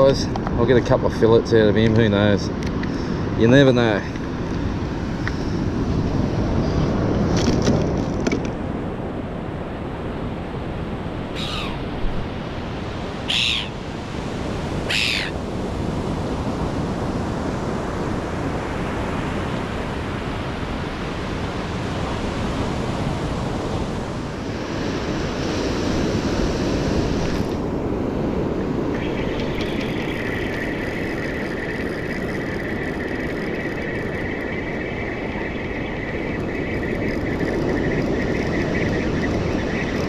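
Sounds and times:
bird short falling calls: 11.3s - 11.9s, 13.3s - 13.8s, 14.9s - 15.4s.

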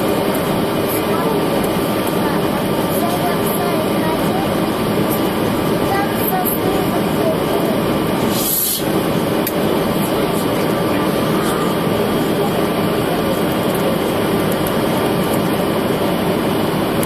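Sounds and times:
airflow rushing over fuselage: 0.0s - 17.0s
jet engines droning: 0.0s - 17.0s
brief hiss: 8.3s - 8.9s.

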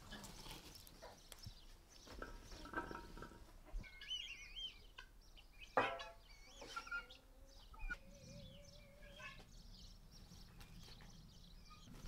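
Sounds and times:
birds warbling chirps: 0.0s - 12.0s.

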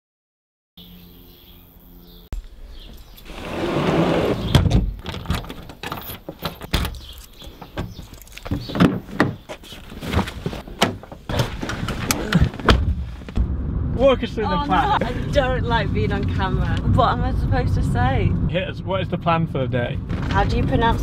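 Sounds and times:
car door opened and shut: 3.3s - 9.6s, 10.2s - 13.4s.

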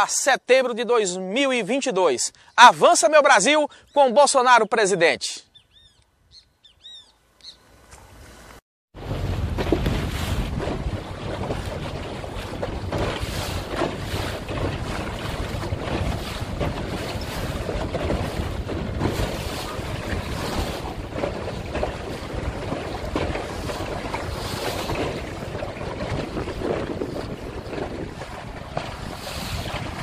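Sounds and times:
choppy water washing: 8.9s - 30.0s
wind buffeting microphone: 9.0s - 30.0s.

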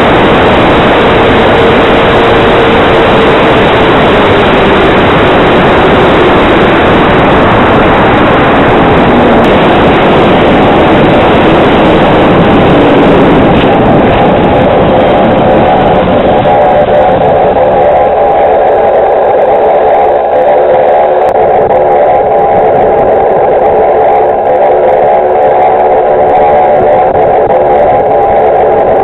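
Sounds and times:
model motor and propeller hum: 0.0s - 29.0s
wind rushing over microphone: 0.0s - 29.0s.

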